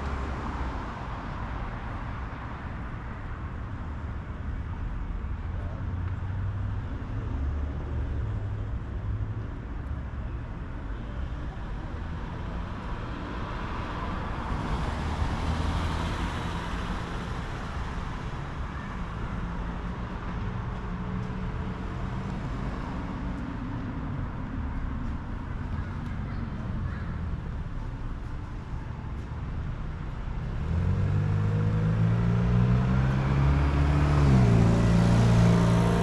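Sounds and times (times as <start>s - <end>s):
street traffic noise: 0.0s - 36.0s.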